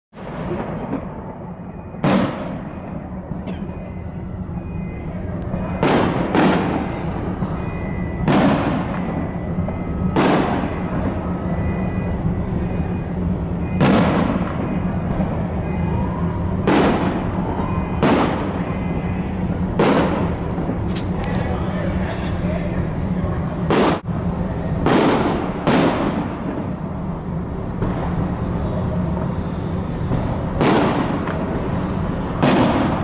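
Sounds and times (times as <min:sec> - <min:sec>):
firework shells bursting: 0:02.0 - 0:03.0, 0:05.6 - 0:11.8, 0:13.6 - 0:15.8, 0:19.8 - 0:21.5, 0:29.1 - 0:33.0.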